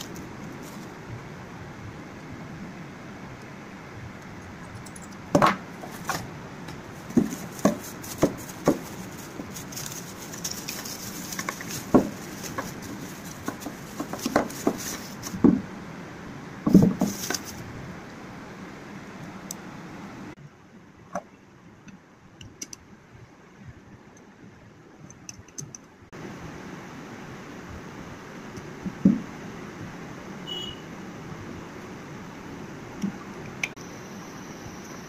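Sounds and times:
plastic wrapping rustling: 0:00.0 - 0:01.0, 0:05.8 - 0:06.3, 0:06.9 - 0:15.5, 0:16.7 - 0:17.6.

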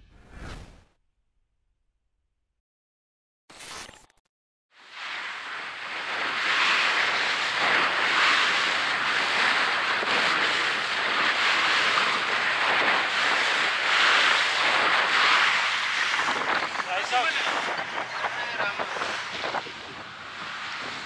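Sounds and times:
water rushing past boat hull: 0:05.0 - 0:19.6
wind buffeting microphone: 0:05.7 - 0:21.0.

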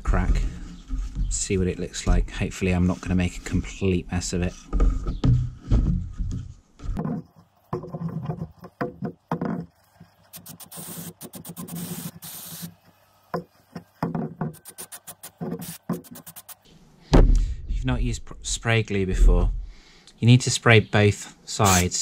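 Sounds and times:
aerosol can hissing: 0:10.3 - 0:12.8, 0:14.5 - 0:16.7, 0:21.6 - 0:22.0.

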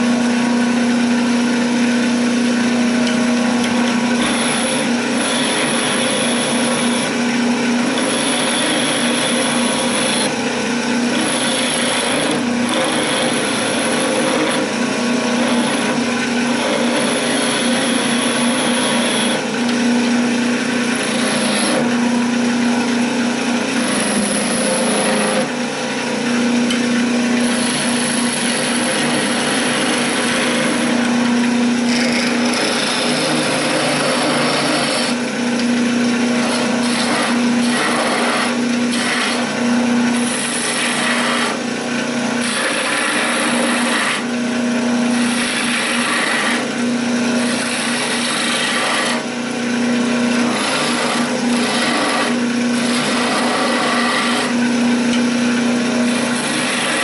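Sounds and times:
wood lathe humming: 0:00.0 - 0:57.0
chisel shaving wood hiss: 0:04.1 - 0:07.2, 0:07.8 - 0:10.4, 0:11.1 - 0:19.5, 0:20.6 - 0:22.0, 0:23.7 - 0:25.5, 0:27.4 - 0:31.1, 0:31.8 - 0:35.2, 0:36.3 - 0:44.3, 0:45.1 - 0:49.3, 0:50.1 - 0:54.6, 0:56.0 - 0:57.0.

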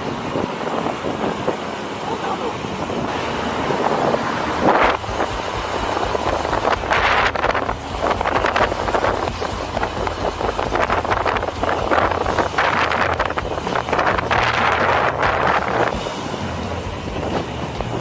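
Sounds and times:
low traffic rumble: 0:00.0 - 0:18.0
wind buffeting microphone: 0:00.0 - 0:18.0.

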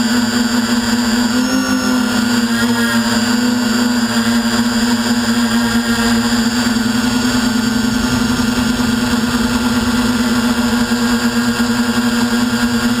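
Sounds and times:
drone motors humming: 0:00.0 - 0:13.0
low wind rumble: 0:05.0 - 0:13.0.

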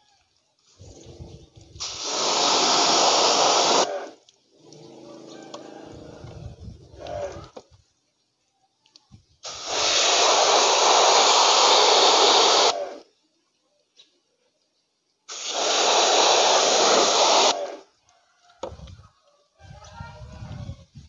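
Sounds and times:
pressure washer spraying water: 0:01.6 - 0:04.2, 0:09.4 - 0:13.0, 0:15.3 - 0:17.8.

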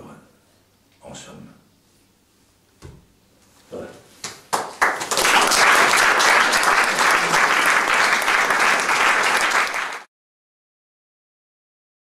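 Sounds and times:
audience applauding: 0:04.5 - 0:10.1.

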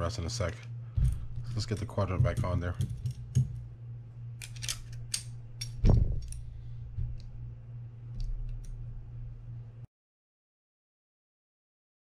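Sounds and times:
steady low hum: 0:00.0 - 0:09.9
dull knock: 0:02.1 - 0:03.6
metal reel parts clicking: 0:04.4 - 0:06.5.

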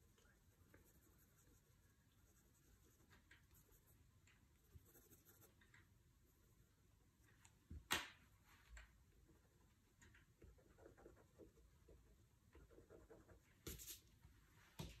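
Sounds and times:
pencil scratching on paper: 0:00.0 - 0:04.0, 0:04.6 - 0:05.6, 0:12.6 - 0:14.0.

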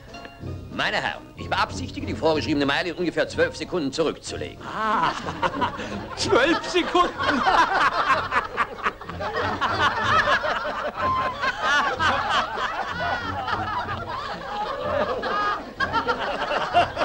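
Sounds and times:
group of men laughing: 0:04.6 - 0:17.0.

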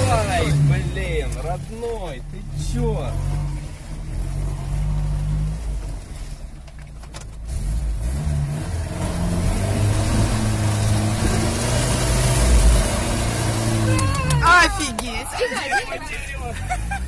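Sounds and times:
vehicle engine from inside cab: 0:00.0 - 0:17.0.

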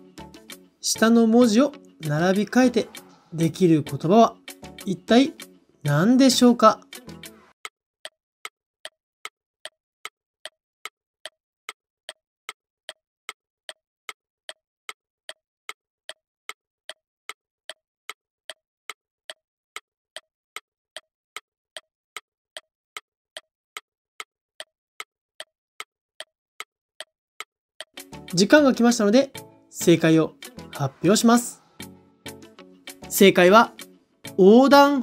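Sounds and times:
countdown timer ticking: 0:00.0 - 0:07.3, 0:26.2 - 0:35.0.

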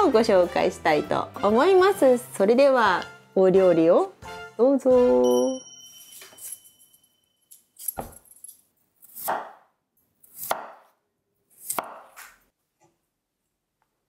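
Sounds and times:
knife cutting potatoes on board: 0:09.0 - 0:12.4.

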